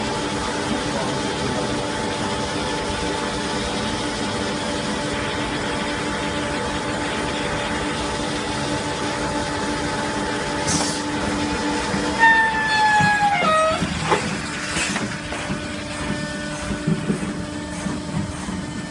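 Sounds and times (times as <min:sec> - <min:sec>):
filling machine humming: 0:00.0 - 0:18.9.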